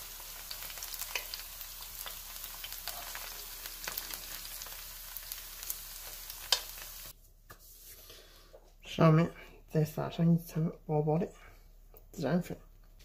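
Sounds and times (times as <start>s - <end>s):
oil sizzling in a frying pan: 0.0s - 7.2s.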